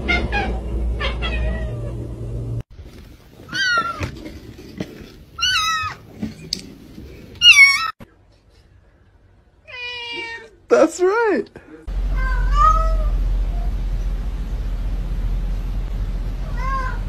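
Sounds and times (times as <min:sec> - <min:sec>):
low hum: 0:00.0 - 0:03.5, 0:11.7 - 0:17.0
cat meowing: 0:03.5 - 0:04.1, 0:05.4 - 0:06.0, 0:07.4 - 0:08.0, 0:09.6 - 0:10.6, 0:12.1 - 0:13.2, 0:16.4 - 0:17.0.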